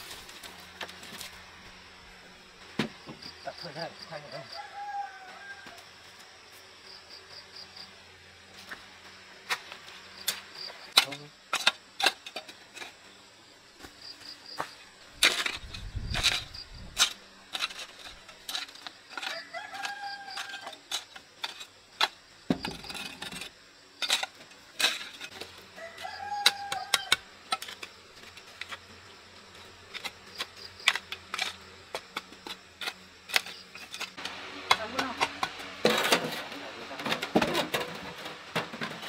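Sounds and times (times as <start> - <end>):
rooster crowing: 4.5 - 6.0, 19.2 - 20.8, 25.7 - 27.3.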